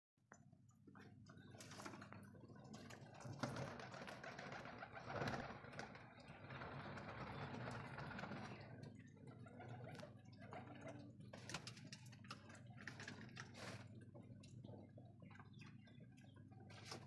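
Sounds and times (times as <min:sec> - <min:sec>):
pigeons pecking grain: 0:01.0 - 0:17.0
pigeons cooing: 0:03.8 - 0:11.8.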